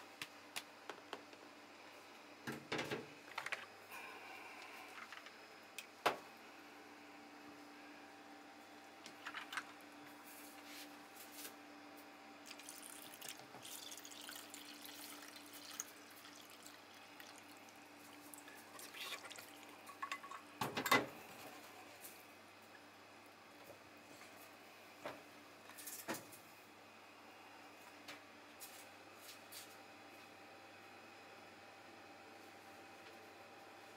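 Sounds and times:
faint steady hum: 0.0s - 33.9s
liquid pouring and dripping: 12.4s - 20.4s.

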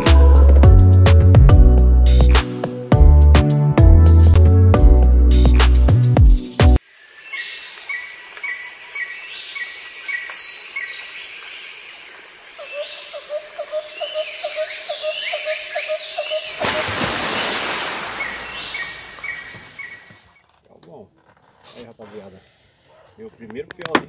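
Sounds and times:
birds chirping and whistling: 18.1s - 20.4s.

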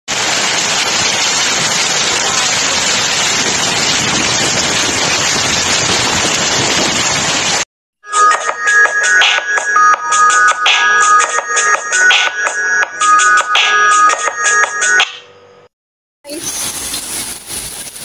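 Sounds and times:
hail pelting street and cars: 0.1s - 7.6s.

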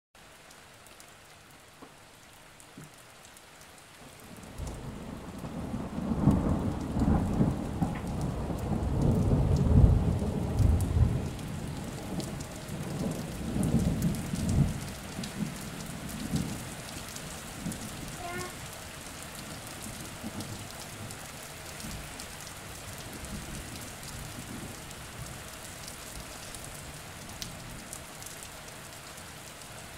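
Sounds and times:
heavy rain hiss: 0.3s - 29.9s.

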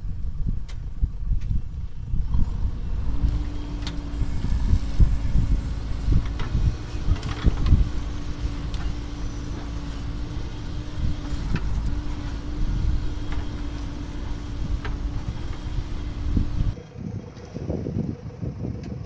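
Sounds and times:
diesel engine running: 0.0s - 19.0s
bucket working loose gravel: 2.2s - 16.8s.

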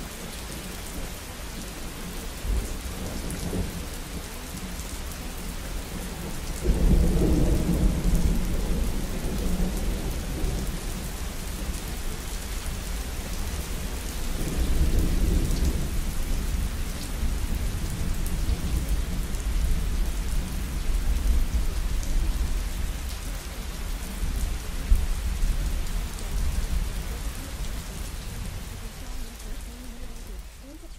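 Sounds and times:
steady rain: 0.0s - 30.9s
rolling thunder: 6.6s - 11.2s.

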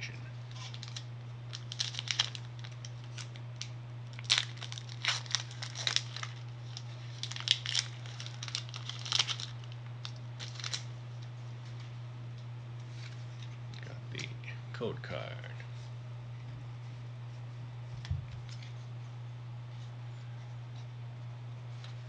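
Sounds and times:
foil wrapper tearing and crinkling: 0.5s - 10.9s.

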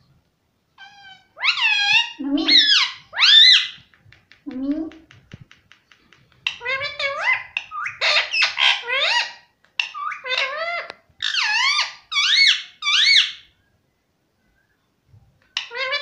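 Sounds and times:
parakeet squeaky calls: 0.8s - 3.8s, 6.5s - 13.5s.

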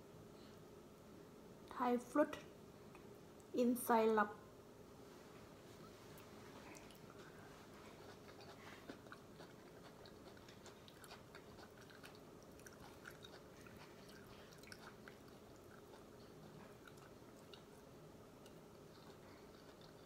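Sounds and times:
faint chewing with mouth clicks: 5.8s - 20.0s.

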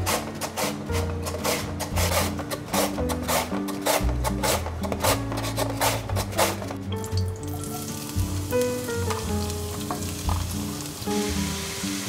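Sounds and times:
carrot rasping on mandoline slicer: 0.0s - 6.7s
sizzling in hot oil: 7.4s - 12.0s.

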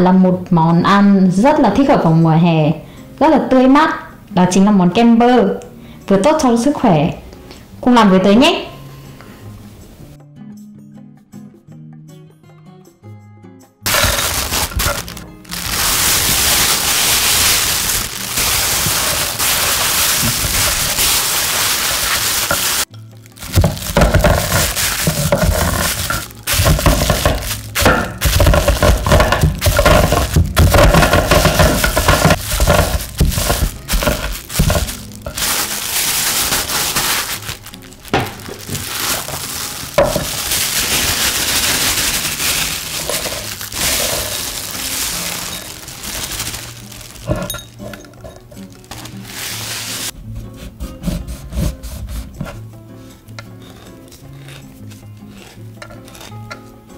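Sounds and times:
nuts cracking: 13.9s - 49.2s
plastic bag crinkling: 13.9s - 50.1s.

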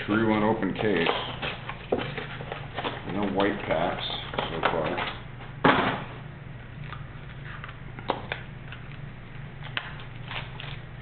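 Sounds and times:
steady low hum: 0.0s - 11.0s
card pack rustling: 0.1s - 5.2s.

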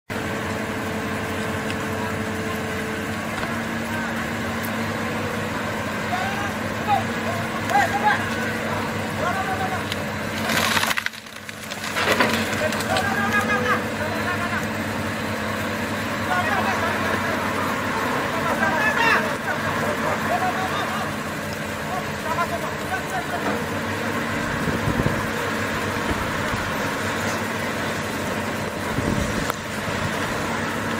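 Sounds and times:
excavator diesel engine running: 0.1s - 30.9s.

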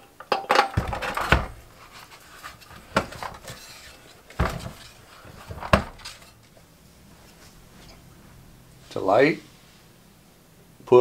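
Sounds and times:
hard plastic clunks and knocks: 0.6s - 1.7s, 2.8s - 3.6s, 4.3s - 6.2s.

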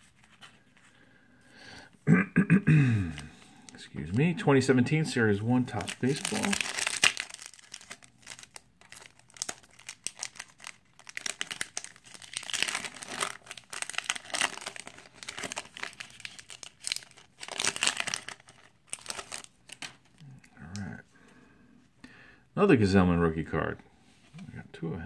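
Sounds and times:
foil wrapper tearing and crinkling: 5.7s - 20.0s.

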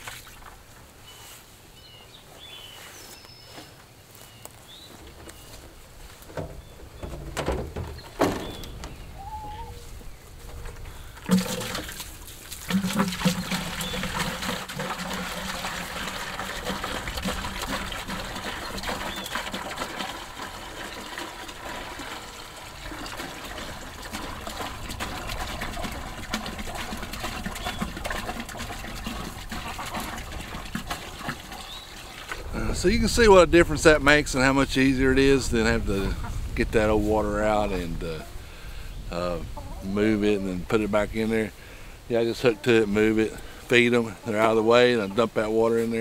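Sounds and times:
water splashing into bucket: 0.0s - 0.7s, 10.5s - 33.2s
handling knocks: 6.2s - 9.2s.

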